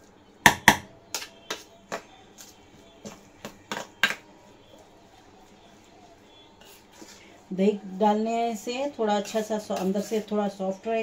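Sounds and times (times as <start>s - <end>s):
spoon scraping metal bowl: 9.1s - 10.6s.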